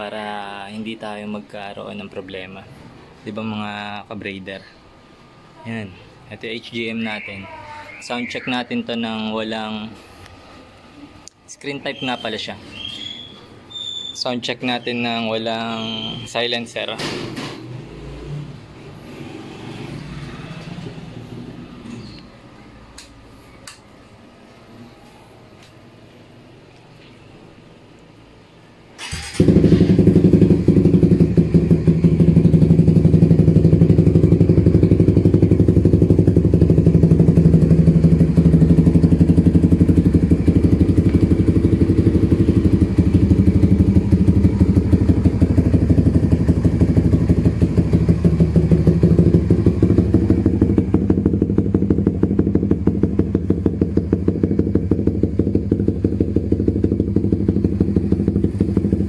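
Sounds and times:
motorcycle engine idling loudly: 29.4 - 59.0.

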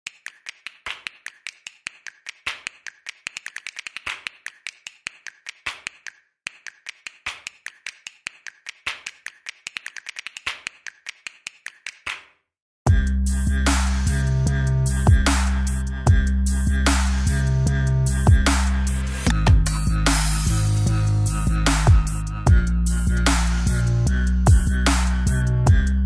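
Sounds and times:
fast sharp clicks: 0.1 - 12.3.

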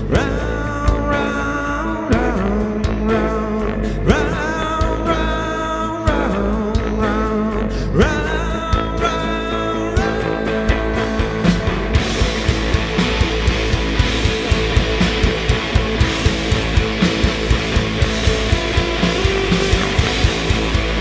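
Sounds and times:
live rock band playing: 0.0 - 21.0
guitar notes swooping up: 9.1 - 21.0.

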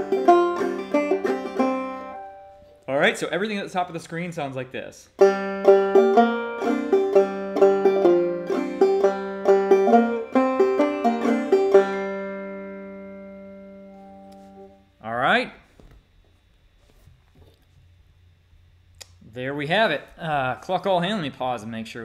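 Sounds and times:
banjo playing: 0.0 - 2.7, 5.2 - 14.7.

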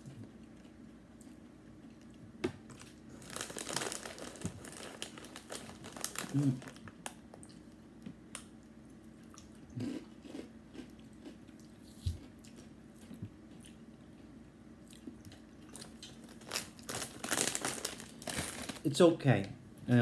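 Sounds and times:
corn chips crunching: 2.7 - 7.2, 15.7 - 18.9.

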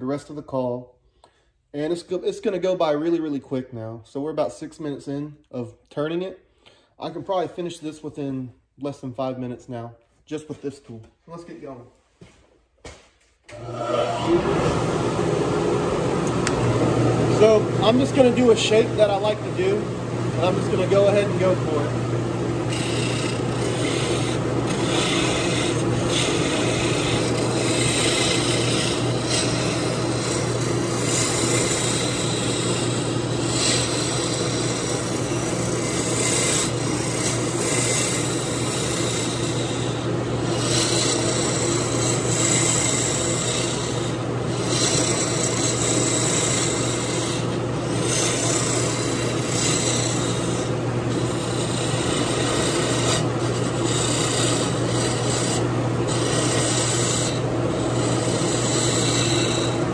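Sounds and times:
wood lathe humming: 13.5 - 59.9
tool scraping spinning wood: 16.5 - 59.9.

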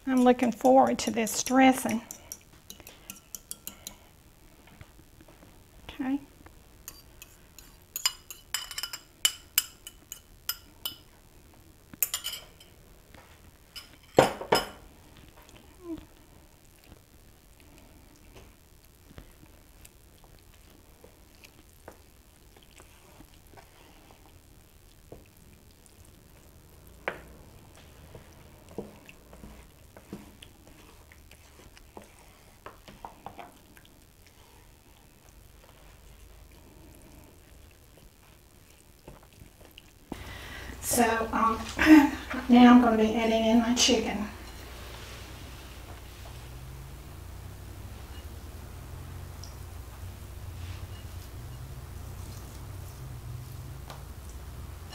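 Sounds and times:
fork clinking against ceramic bowl: 1.4 - 4.0, 6.9 - 11.0, 12.0 - 12.7.

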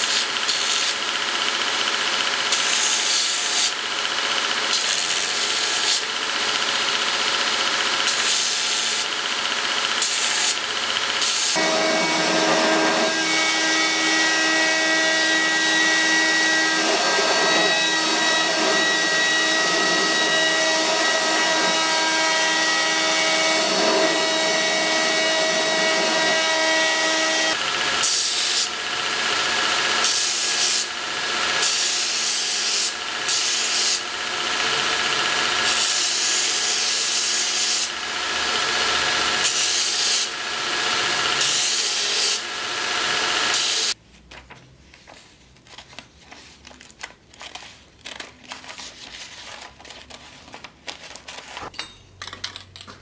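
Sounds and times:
belt grinder grinding metal: 0.0 - 44.0
motor hum: 9.0 - 32.0.

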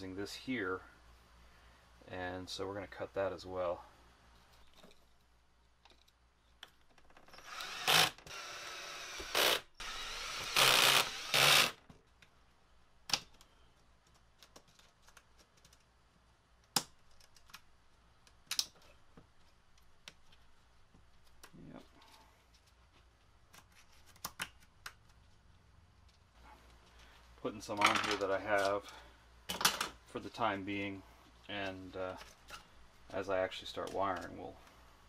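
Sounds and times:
cordless drill running: 7.3 - 11.8.

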